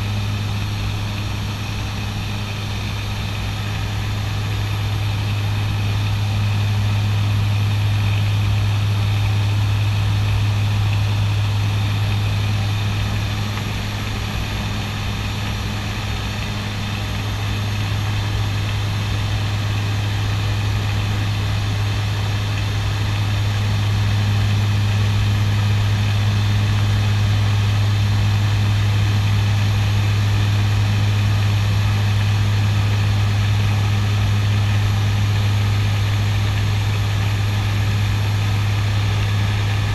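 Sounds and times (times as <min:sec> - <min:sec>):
turboprop cockpit drone: 0:00.0 - 0:39.9.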